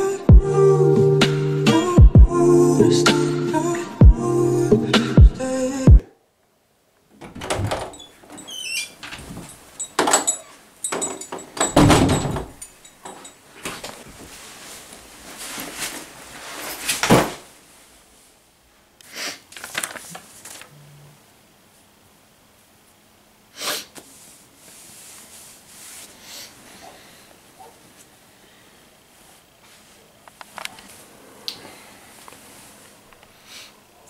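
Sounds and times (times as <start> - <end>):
door opening and shutting: 7.1 - 12.8
person sitting on bed rustling: 7.2 - 18.4, 19.5 - 20.8, 23.9 - 33.4.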